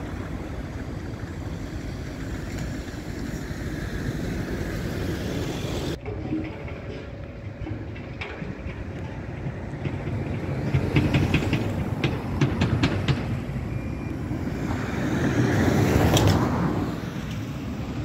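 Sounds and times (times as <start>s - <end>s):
traffic low rumble: 0.0s - 18.0s
metallic clanks: 5.9s - 13.6s
vehicle passing close by: 11.0s - 18.0s.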